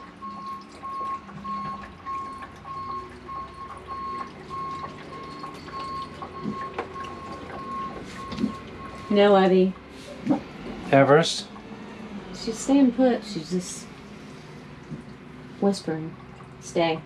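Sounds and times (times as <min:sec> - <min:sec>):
low steady hum: 0:00.0 - 0:17.0
short electronic beeps: 0:00.2 - 0:09.3.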